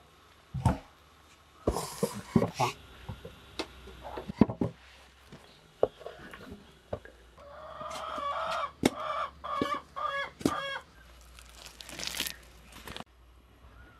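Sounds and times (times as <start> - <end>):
chicken calling: 7.4 - 12.5.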